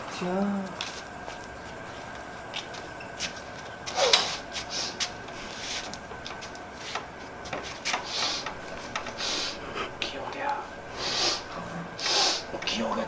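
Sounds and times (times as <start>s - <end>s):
soft breathy hisses: 4.3s - 5.9s, 9.2s - 10.2s, 10.9s - 12.5s.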